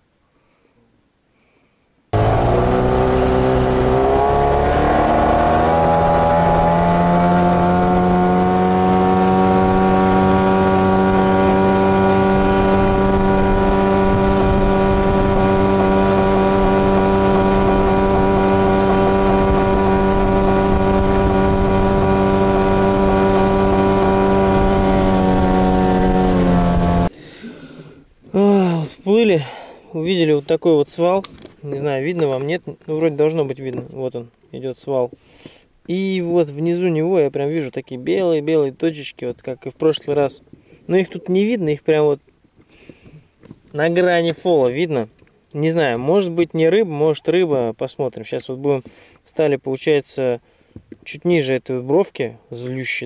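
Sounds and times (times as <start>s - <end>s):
outboard motor running: 2.2s - 27.1s.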